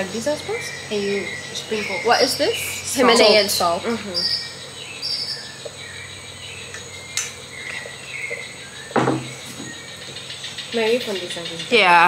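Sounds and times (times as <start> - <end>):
insects trilling: 0.0 - 12.0
short thump: 9.0 - 9.8.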